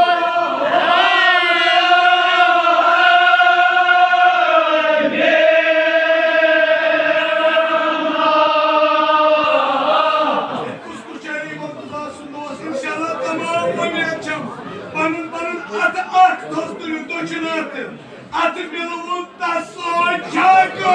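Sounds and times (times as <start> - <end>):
men chanting together: 0.0 - 10.9.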